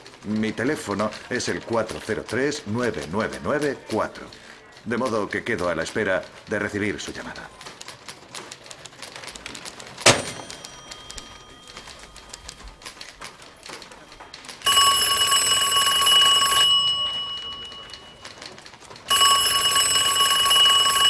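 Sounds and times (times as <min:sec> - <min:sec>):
telephone handset clacking on cradle: 0:09.6 - 0:21.0
telephone bell ringing: 0:10.3 - 0:12.7, 0:14.0 - 0:21.0.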